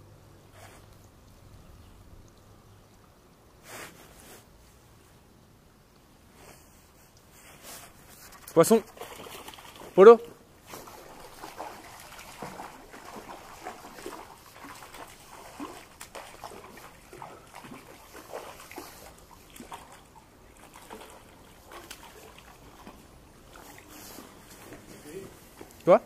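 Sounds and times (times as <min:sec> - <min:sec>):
stream running: 0:00.1 - 0:06.3, 0:07.2 - 0:26.0
fish splashing at the surface: 0:08.8 - 0:10.0, 0:10.6 - 0:24.2.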